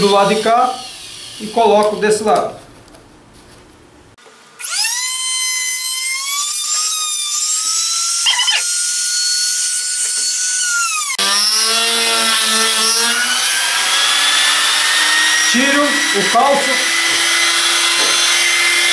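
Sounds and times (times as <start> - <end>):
router bit cutting wood: 4.6 - 18.9
router motor whine: 4.6 - 18.9.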